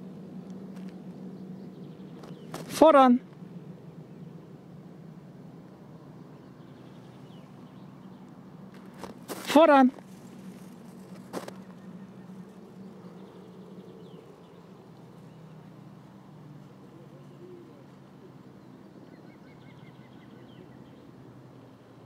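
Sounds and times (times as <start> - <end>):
low outdoor rumble: 0.0 - 22.0
bird chirping: 1.2 - 2.7, 6.2 - 9.0, 10.6 - 16.2, 16.9 - 21.2.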